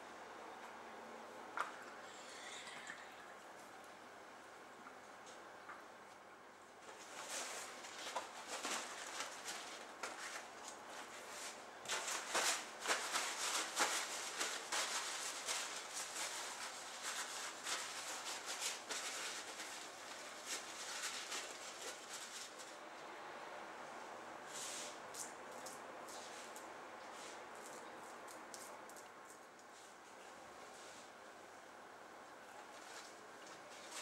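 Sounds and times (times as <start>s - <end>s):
paper towels crinkling: 6.8s - 22.8s, 32.6s - 34.0s.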